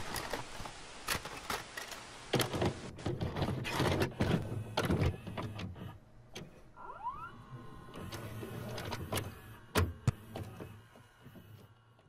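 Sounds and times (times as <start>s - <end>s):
motor whirring: 4.1s - 12.0s.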